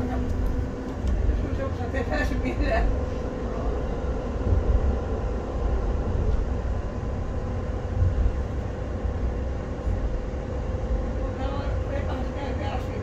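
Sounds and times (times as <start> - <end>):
tram deep rumble: 0.0 - 13.0.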